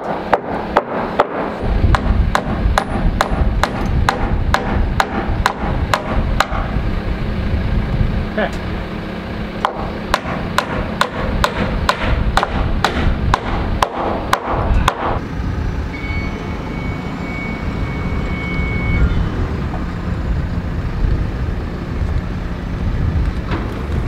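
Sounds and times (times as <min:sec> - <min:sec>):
hammer blows on timber: 0:00.0 - 0:06.8, 0:09.6 - 0:15.2
engine running: 0:00.0 - 0:24.0
thin steady whine: 0:00.0 - 0:24.0.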